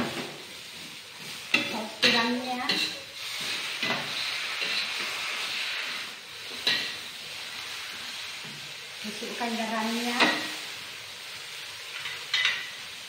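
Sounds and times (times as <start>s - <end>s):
bean sprouts sizzling in a wok: 0.0s - 13.0s
metal spatula scraping a wok: 0.2s - 8.6s.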